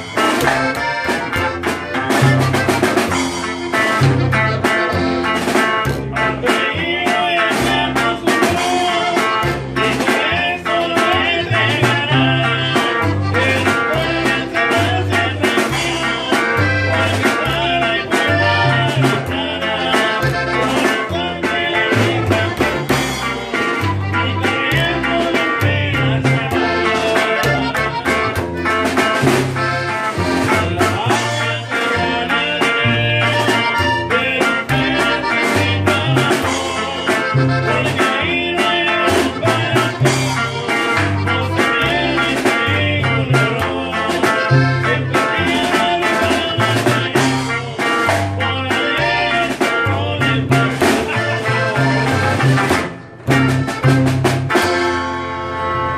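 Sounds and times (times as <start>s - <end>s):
snare drum beat: 0.0s - 6.2s, 33.1s - 55.0s
button accordion melody: 0.0s - 55.9s
guitar strumming bass line: 0.0s - 55.9s.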